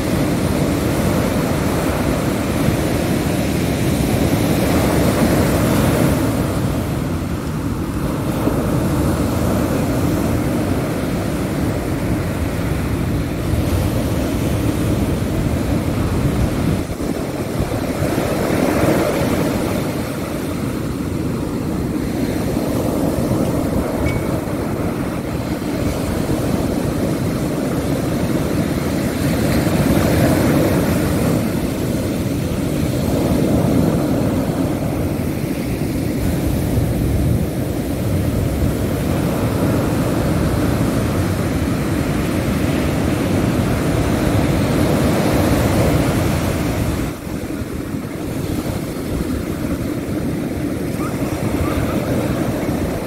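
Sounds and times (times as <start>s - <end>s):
ocean surf breaking on beach: 0.0s - 53.0s
wind buffeting microphone: 0.0s - 53.0s.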